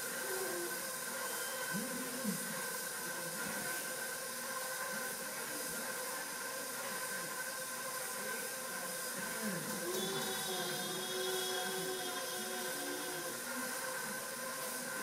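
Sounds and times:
appliance motor humming: 0:09.6 - 0:15.0.

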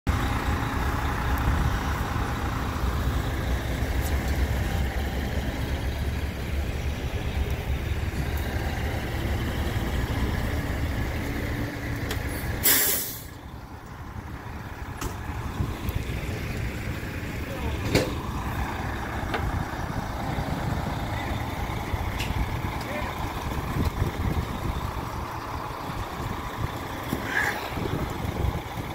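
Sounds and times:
diesel engine rumbling: 0:00.1 - 0:28.9
air brakes hissing: 0:12.2 - 0:13.4, 0:27.2 - 0:27.7.

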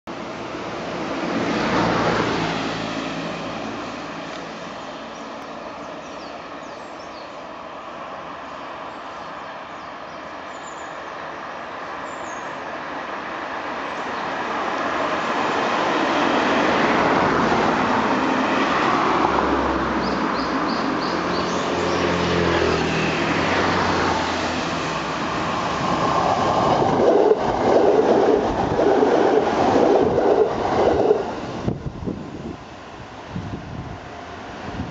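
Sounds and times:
road traffic: 0:00.1 - 0:34.9
vehicle passing: 0:00.8 - 0:05.2, 0:15.4 - 0:31.8
electric train running: 0:20.2 - 0:34.9.

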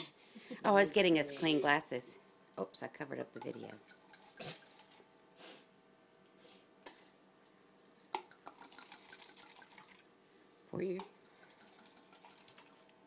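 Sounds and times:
wine trickling into cups: 0:03.4 - 0:05.0, 0:08.2 - 0:10.1, 0:11.0 - 0:13.0.

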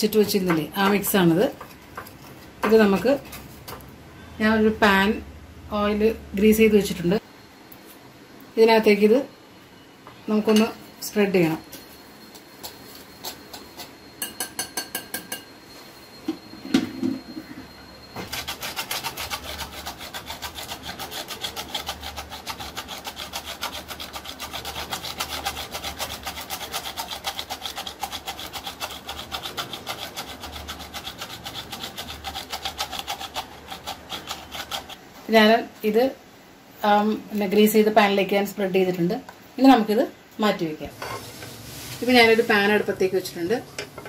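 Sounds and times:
sieve rasping over metal pan: 0:18.3 - 0:35.0.

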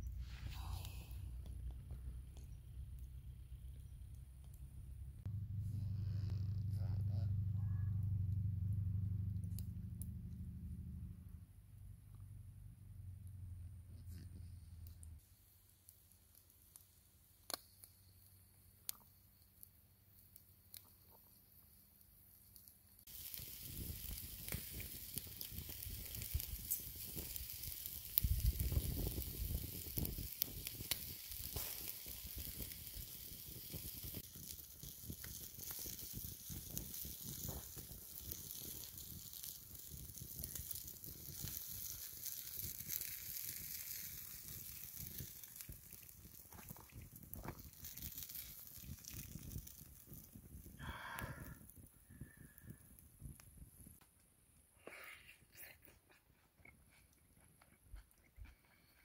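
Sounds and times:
fire crackling and popping: 0:00.0 - 0:11.0, 0:14.0 - 0:55.0
brief low rumble: 0:05.3 - 0:11.4
chicken sizzling on a spit: 0:14.8 - 0:54.0.

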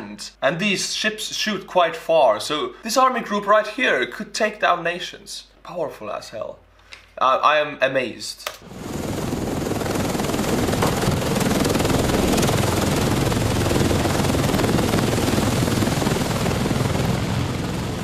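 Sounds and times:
aircraft rotor noise: 0:08.6 - 0:18.0.

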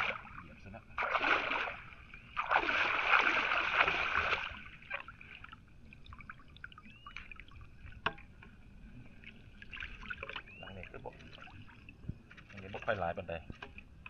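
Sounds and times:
water splashing and pouring: 0:00.0 - 0:06.3.

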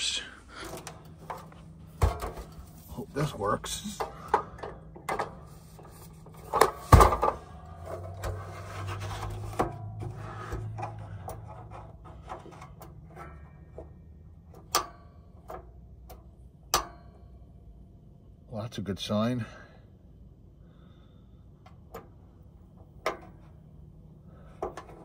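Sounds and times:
low steady hum: 0:00.0 - 0:25.0
heater handling knocks and rubbing: 0:00.6 - 0:15.6.

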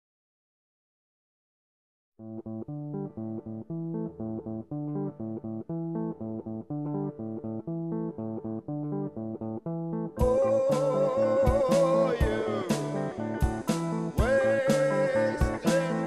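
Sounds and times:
plucked guitar and bass riff: 0:02.2 - 0:16.0
band with drums: 0:11.5 - 0:16.0.

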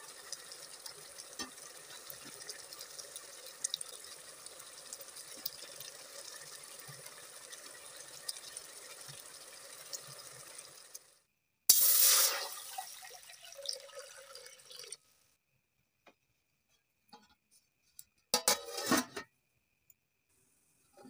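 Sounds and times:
water pouring into metal pot: 0:00.0 - 0:11.1, 0:11.7 - 0:15.0.

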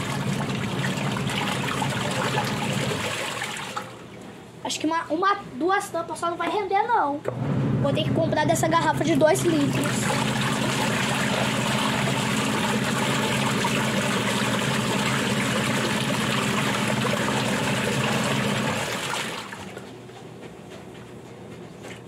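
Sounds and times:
washing machine motor hum: 0:00.0 - 0:22.0.

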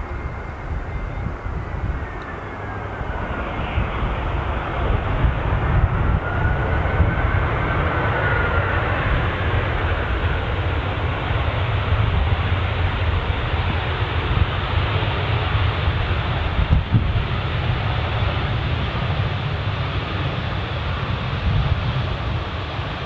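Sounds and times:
faint jet engine whine: 0:00.0 - 0:23.0
jet engine rumble: 0:00.0 - 0:23.0.

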